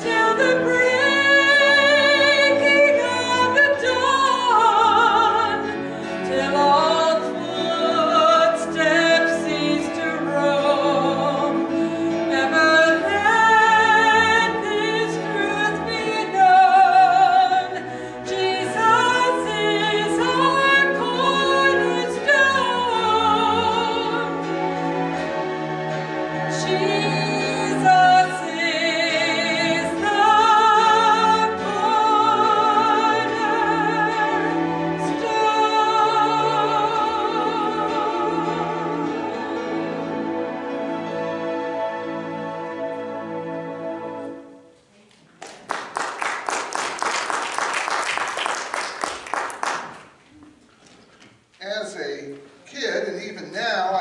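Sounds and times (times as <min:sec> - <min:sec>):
woman singing: 0:00.0 - 0:24.6, 0:26.4 - 0:39.8
sustained instrumental accompaniment: 0:00.0 - 0:44.9.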